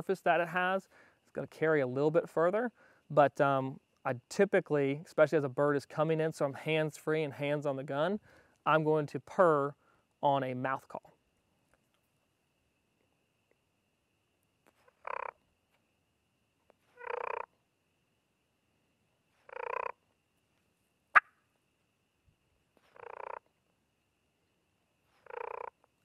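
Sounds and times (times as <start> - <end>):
turkey purrs on mouth call: 14.6 - 15.4, 16.7 - 17.6, 19.4 - 20.0, 22.8 - 23.5, 25.1 - 25.9.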